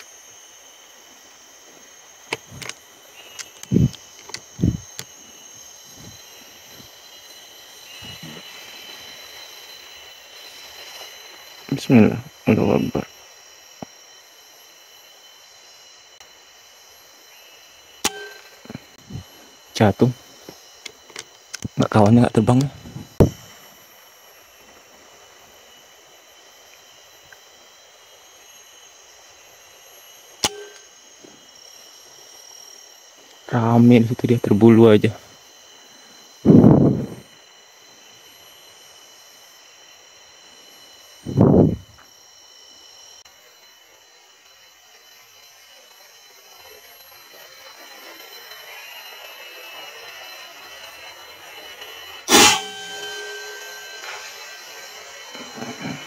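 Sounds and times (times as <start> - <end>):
high-pitched insect drone: 0.0 - 56.0
buzzing tone: 1.7 - 10.1, 17.8 - 20.6, 30.4 - 31.0, 41.2 - 42.0, 48.2 - 56.0
air rifle shot: 52.3 - 53.0.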